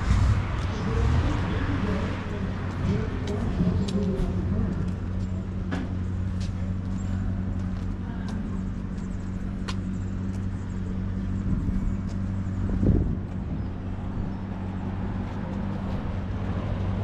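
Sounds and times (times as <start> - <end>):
low mechanical hum: 4.0 - 17.0.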